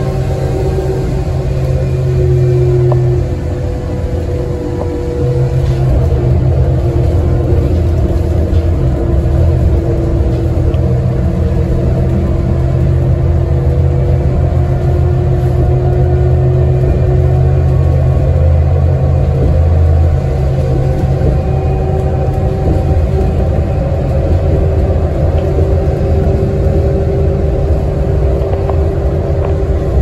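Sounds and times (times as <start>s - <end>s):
bus engine and road rumble: 0.0s - 30.0s
steady hum: 0.0s - 30.0s.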